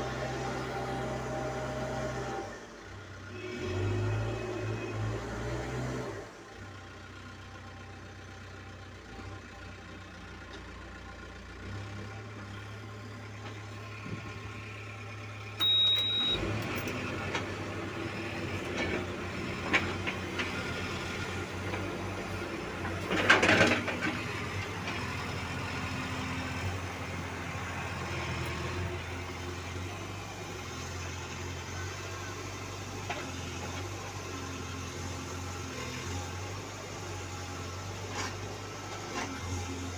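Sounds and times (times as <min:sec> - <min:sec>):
diesel engine running: 0:00.0 - 0:39.9
short high beep: 0:15.6 - 0:16.5.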